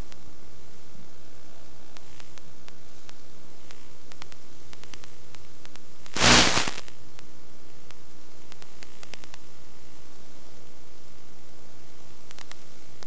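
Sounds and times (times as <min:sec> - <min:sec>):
static hiss: 0:00.0 - 0:13.0
loud burst of noise: 0:06.1 - 0:06.8
faint clicks: 0:12.2 - 0:13.0.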